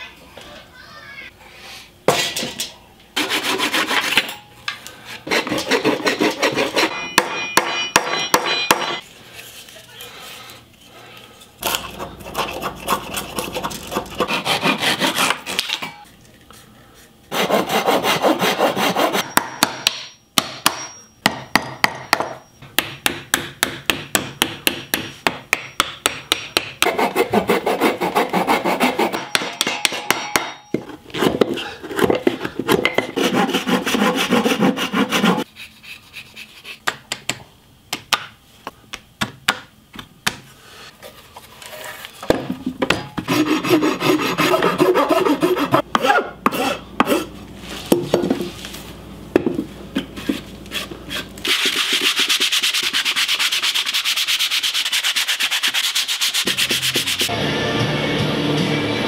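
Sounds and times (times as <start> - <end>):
hand saw cutting wood: 3.2 - 4.2, 5.2 - 7.0, 11.6 - 15.7, 17.3 - 19.2, 26.8 - 29.2, 31.2 - 36.8, 43.2 - 47.3
rasp filing wood: 3.2 - 4.2, 5.2 - 7.0, 11.6 - 15.6, 17.3 - 19.2, 26.8 - 29.2, 31.2 - 36.8, 43.2 - 47.3, 50.2 - 57.3.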